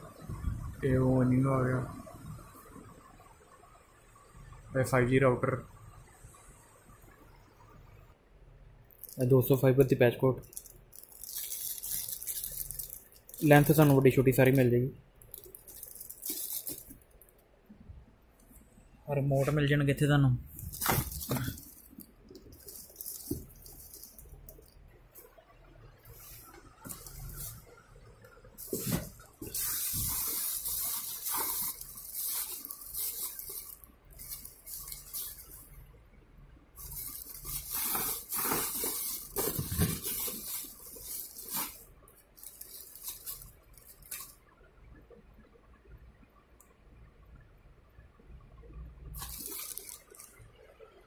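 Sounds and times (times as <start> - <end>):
plastic bags crinkling: 8.9 - 9.7, 10.4 - 17.3, 20.4 - 25.4, 26.0 - 27.8, 28.6 - 35.8, 36.8 - 44.4, 49.2 - 50.4.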